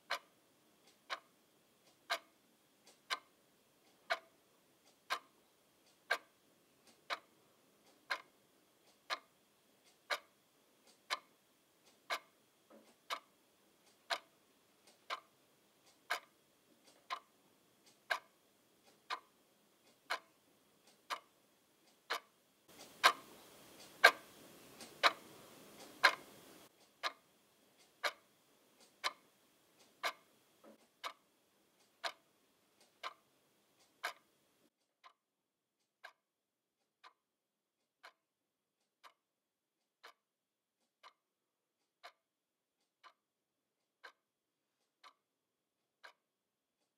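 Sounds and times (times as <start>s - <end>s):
clock ticking: 0.0s - 46.9s.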